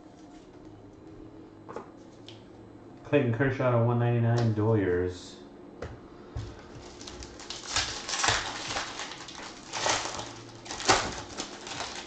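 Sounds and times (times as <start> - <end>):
foil pack crinkling and tearing: 6.7 - 12.0.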